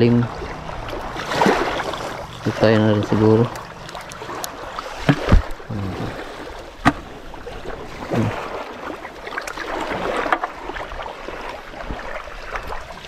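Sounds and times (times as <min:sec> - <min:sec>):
water lapping around boat: 0:00.0 - 0:13.0.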